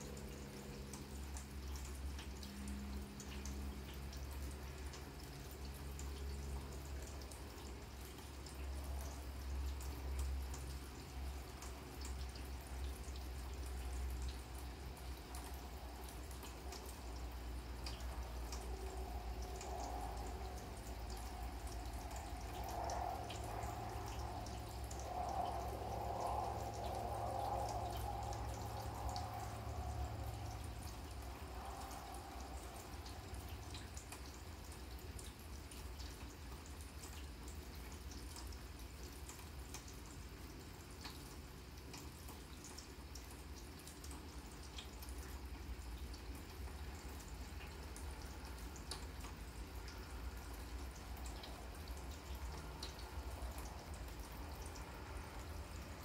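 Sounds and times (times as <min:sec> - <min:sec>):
drip ticks: 0:00.0 - 0:56.0
rain falling on grass: 0:00.0 - 0:56.0
wavering hum: 0:14.6 - 0:34.8.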